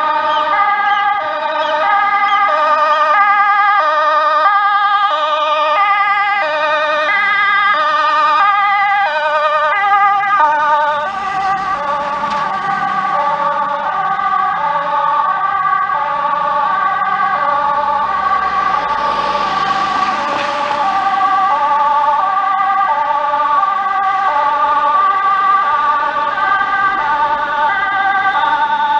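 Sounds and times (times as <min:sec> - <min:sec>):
passing traffic noise: 0:00.0 - 0:28.9
two-tone siren: 0:00.0 - 0:28.9
warbling siren: 0:00.0 - 0:28.9.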